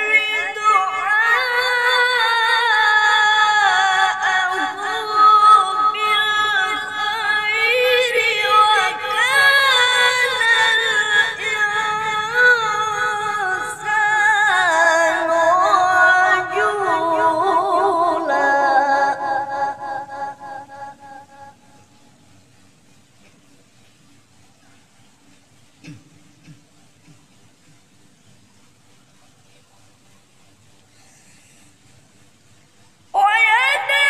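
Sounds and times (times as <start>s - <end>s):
man reciting melodically: 0.0s - 2.2s.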